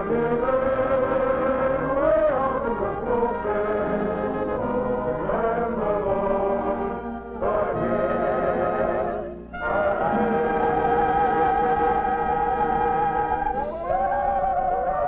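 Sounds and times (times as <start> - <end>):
orchestral music with brass: 0.0 - 13.5.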